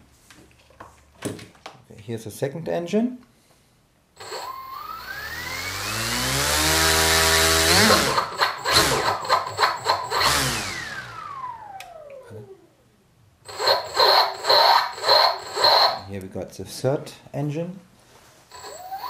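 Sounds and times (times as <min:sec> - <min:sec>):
electric motor whine: 0:04.2 - 0:12.1, 0:13.5 - 0:16.0, 0:18.5 - 0:19.0.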